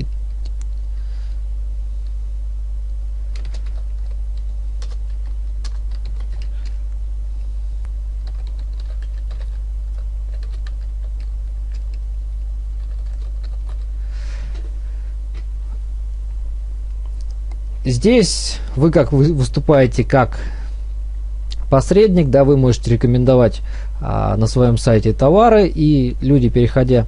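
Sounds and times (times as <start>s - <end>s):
steady low hum: 0.0s - 27.0s
keyboard typing: 3.3s - 6.8s, 8.2s - 12.1s, 12.8s - 13.9s.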